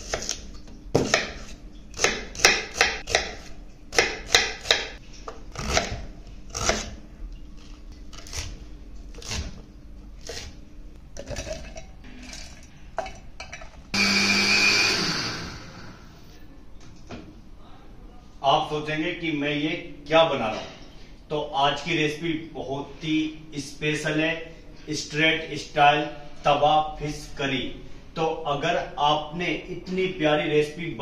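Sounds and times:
knife chopping on wooden board: 1.0 - 6.9
mixer-grinder whirring: 14.0 - 16.3.

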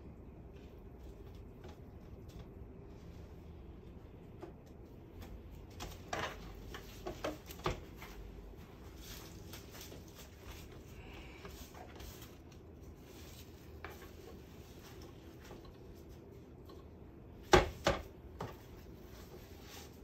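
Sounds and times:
kitchen knocks and clicks: 17.4 - 18.6.

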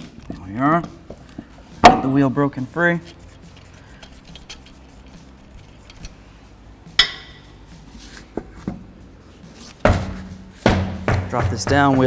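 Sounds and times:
light metallic clinking: 3.4 - 6.2, 6.9 - 7.5
ringing metal clank: 7.0 - 7.5.

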